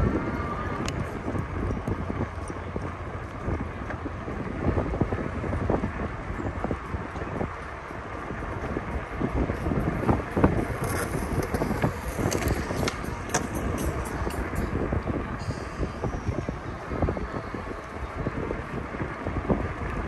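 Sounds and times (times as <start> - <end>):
wind rumbling on microphone: 0.0 - 20.0
bicycle knocks and rattles: 8.3 - 15.2.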